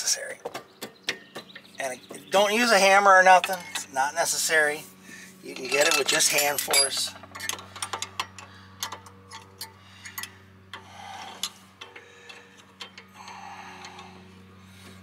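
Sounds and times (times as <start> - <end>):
steady low hum: 0.0 - 15.0
small metal clicks of brake pad: 7.2 - 14.3.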